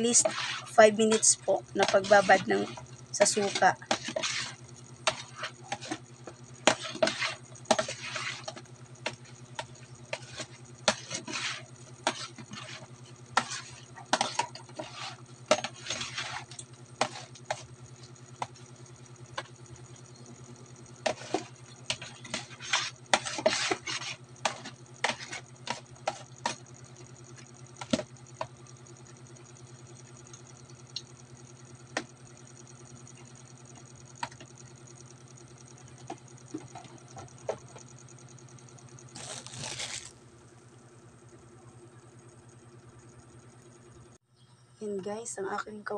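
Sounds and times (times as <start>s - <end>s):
metal turner scraping a bowl: 0.0s - 18.4s, 21.0s - 26.6s.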